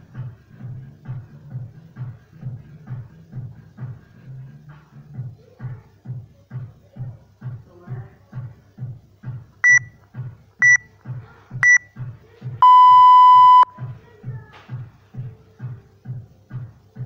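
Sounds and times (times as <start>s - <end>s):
long lower beep: 9.6s - 9.9s, 11.6s - 11.8s, 12.6s - 13.7s
short high beeps: 9.6s - 9.9s, 11.6s - 11.8s, 12.6s - 13.7s.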